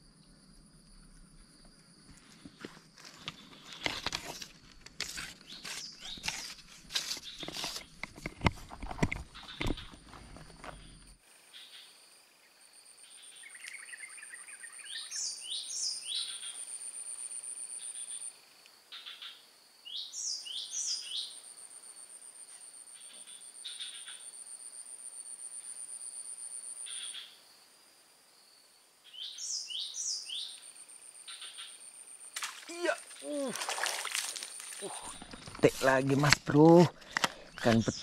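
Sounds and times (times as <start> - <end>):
high pulsing insect trill: 8.7 - 38.0.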